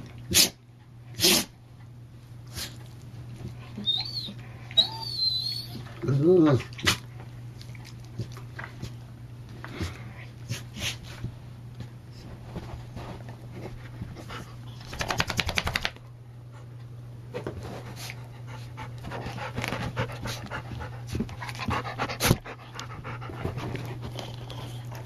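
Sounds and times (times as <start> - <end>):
dog panting: 18.0 - 25.0.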